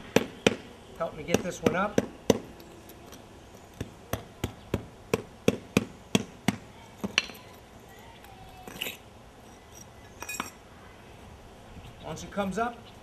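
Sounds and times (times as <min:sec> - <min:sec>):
mallet tapping on brick pavers: 0:00.0 - 0:02.8, 0:03.7 - 0:07.6.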